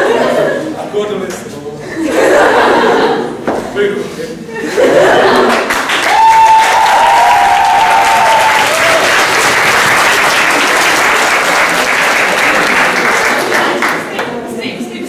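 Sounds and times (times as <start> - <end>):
audience applauding: 5.3 - 14.2.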